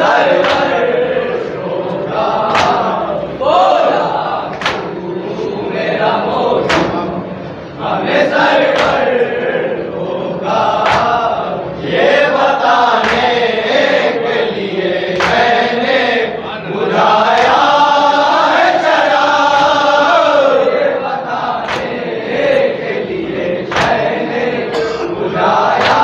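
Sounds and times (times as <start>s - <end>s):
men chanting a lament: 0.0s - 26.0s
sharp beat: 23.8s - 26.0s.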